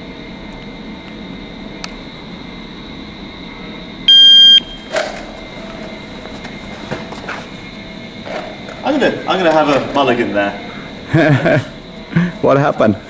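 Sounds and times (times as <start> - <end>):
shot timer beep: 4.1 - 4.9.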